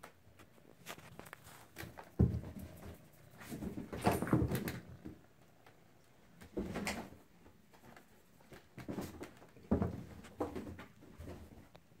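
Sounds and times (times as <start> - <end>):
kittens scrabbling on carpet: 0.4 - 5.2.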